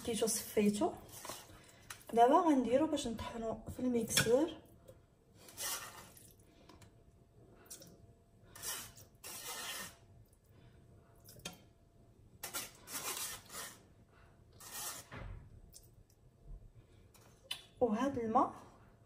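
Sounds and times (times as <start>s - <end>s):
spoon scraping rice in mesh sieve: 8.6s - 10.0s, 12.4s - 13.8s, 14.6s - 15.1s.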